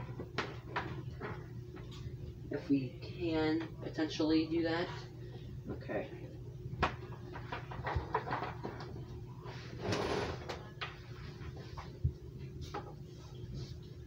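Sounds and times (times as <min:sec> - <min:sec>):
rustling scrape: 0:09.5 - 0:11.8.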